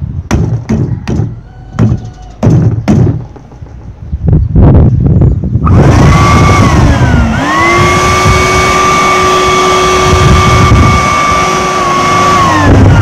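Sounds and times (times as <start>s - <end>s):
vacuum cleaner motor whine: 5.7s - 13.0s.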